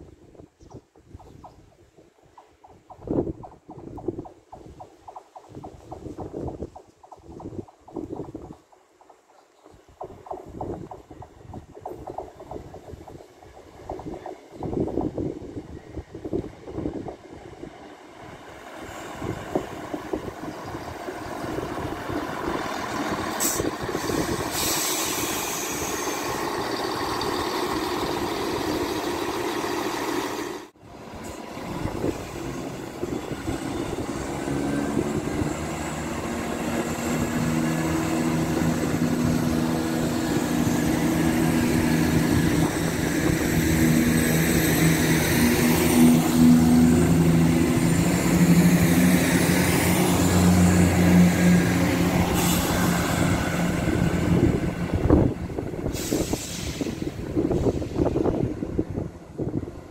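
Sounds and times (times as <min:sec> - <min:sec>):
train wheels rumbling on rail: 0:00.0 - 0:59.9
train diesel engines humming: 0:01.8 - 0:59.9
high squeal: 0:23.4 - 0:26.6.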